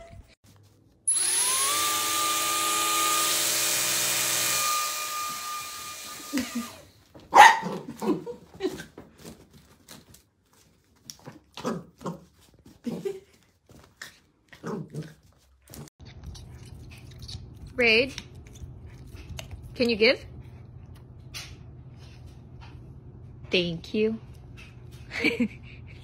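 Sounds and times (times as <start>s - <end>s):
toy electronic whirring buzz: 1.1s - 6.8s
puppy barking: 7.3s - 8.1s.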